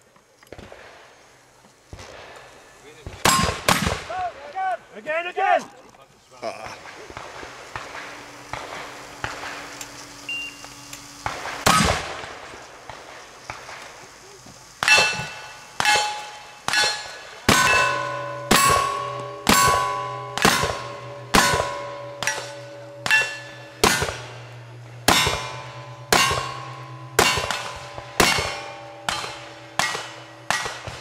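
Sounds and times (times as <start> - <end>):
steel targets ringing: 3.2 - 4.2, 6.8 - 13.8, 14.6 - 31.0
revolver shots: 14.8 - 31.0.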